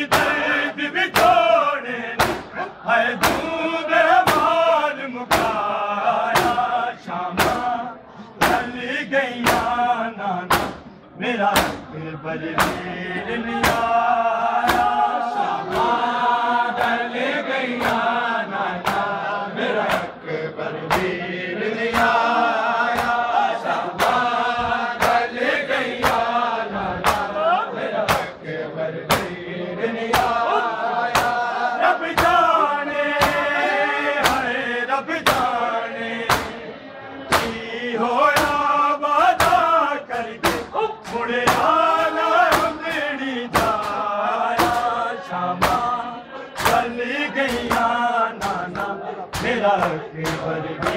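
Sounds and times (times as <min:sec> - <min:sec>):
men chanting in chorus: 0:00.0 - 0:50.9
hands slapping bare chests: 0:22.9 - 0:23.2, 0:26.0 - 0:26.3, 0:27.0 - 0:27.3, 0:28.1 - 0:28.4, 0:29.1 - 0:29.4, 0:30.1 - 0:30.4, 0:31.1 - 0:31.4.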